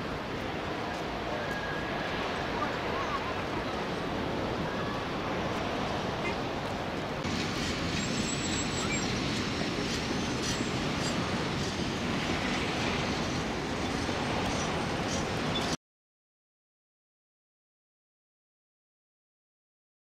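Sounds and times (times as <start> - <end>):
rushing hiss: 7.2 - 15.8.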